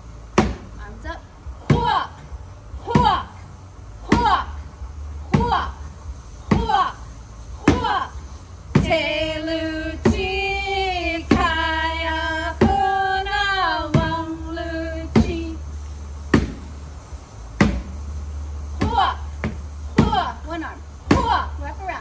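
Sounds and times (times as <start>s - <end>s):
plastic bucket drum beat: 1.6s - 2.2s, 2.8s - 3.4s, 5.2s - 7.0s, 7.6s - 16.9s, 17.6s - 22.0s
women singing: 1.7s - 2.2s, 7.6s - 15.7s.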